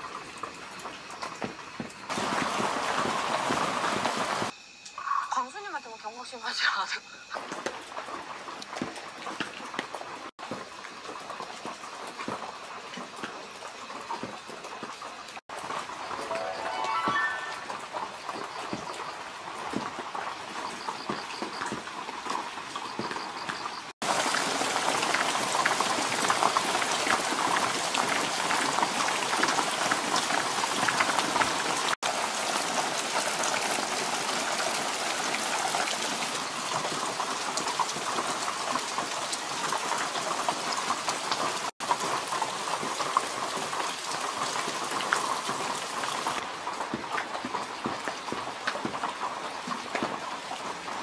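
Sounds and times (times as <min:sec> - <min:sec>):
steady rain patter: 0:00.0 - 0:04.5, 0:06.7 - 0:51.0.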